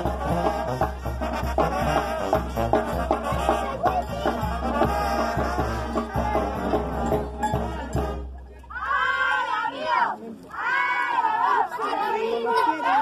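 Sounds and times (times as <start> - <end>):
upbeat latin dance music: 0.0 - 8.2.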